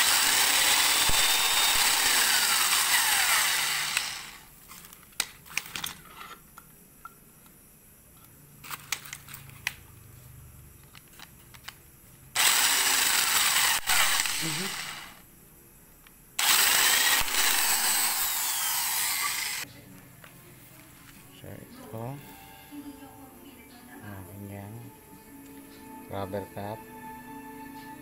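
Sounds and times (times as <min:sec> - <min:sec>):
power drill boring into plastic: 0:00.0 - 0:04.5, 0:12.4 - 0:15.2, 0:16.4 - 0:19.6.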